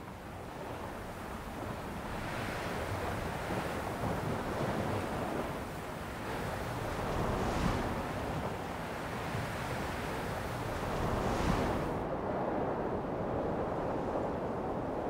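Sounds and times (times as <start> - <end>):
ocean surf washing: 0.0 - 15.0
wave breaking: 10.5 - 12.0.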